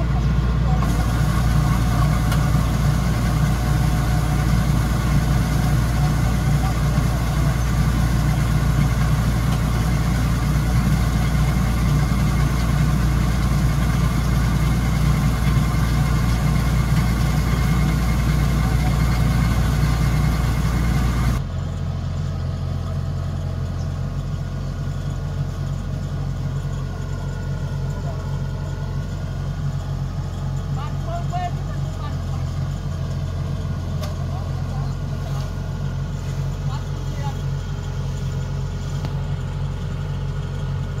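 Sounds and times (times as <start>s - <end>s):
diesel engine running: 0.0s - 41.0s.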